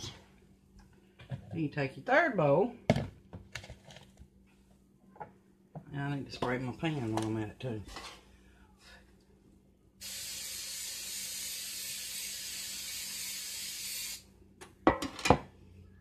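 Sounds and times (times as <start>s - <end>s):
aerosol cooking spray hissing: 10.0s - 14.3s.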